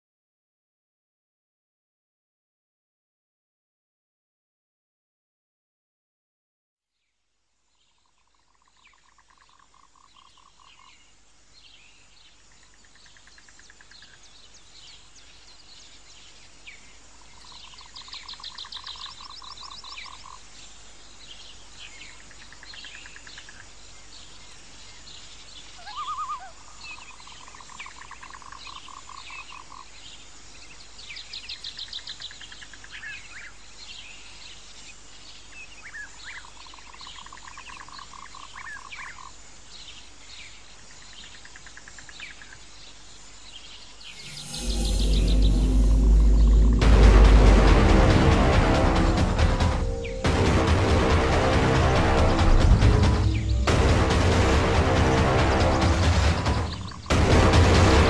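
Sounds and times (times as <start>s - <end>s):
high insect hiss: 8.4s - 46.8s
frogs calling in pulsed trains: 12.5s - 14.3s, 17.2s - 20.5s, 22.1s - 24.0s, 25.8s - 30.0s, 41.3s - 42.7s
bird chirps: 24.3s - 29.9s, 43.7s - 46.8s.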